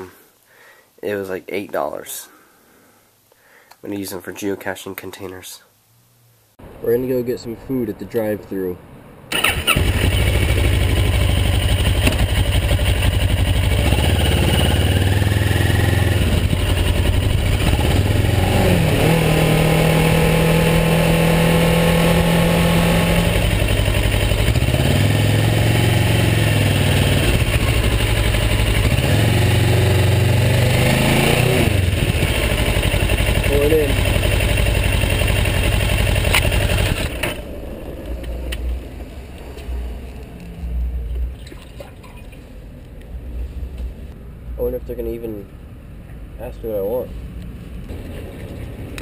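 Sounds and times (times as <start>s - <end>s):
motorcycle engine revving: 9.3s - 40.2s.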